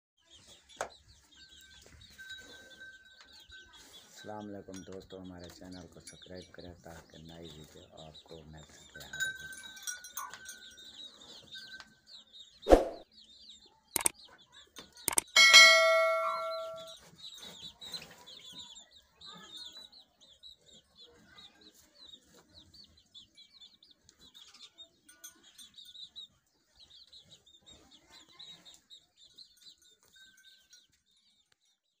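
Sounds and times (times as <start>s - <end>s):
birds chirping: 0.2s - 31.8s
loud metallic clang: 15.3s - 17.0s.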